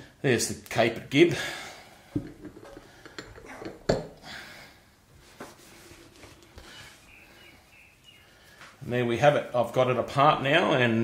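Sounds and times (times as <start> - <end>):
cloth rustling: 5.2 - 7.2.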